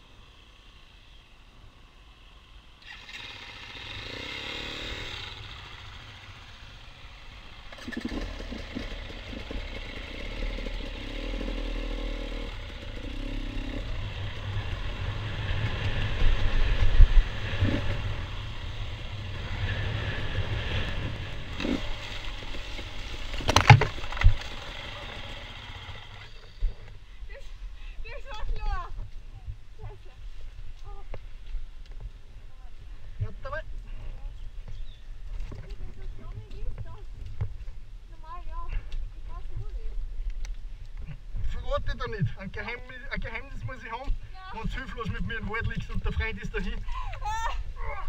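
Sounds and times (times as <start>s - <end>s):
motorcycle engine revving: 2.0s - 27.0s.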